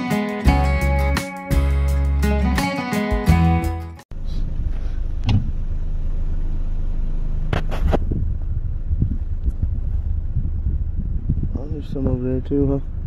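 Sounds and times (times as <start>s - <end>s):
car low rumble inside cabin: 4.1s - 13.0s.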